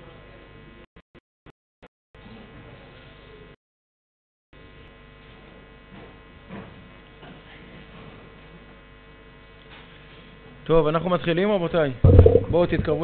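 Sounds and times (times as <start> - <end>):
electrical hum: 11.5 - 13.0.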